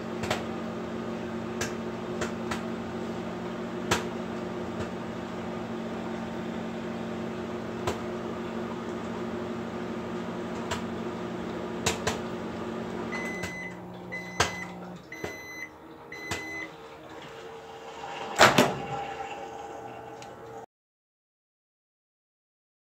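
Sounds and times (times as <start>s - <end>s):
microwave humming: 0.0s - 20.6s
popcorn popping: 3.8s - 4.1s, 11.8s - 12.3s
short microwave beeps: 13.1s - 16.7s.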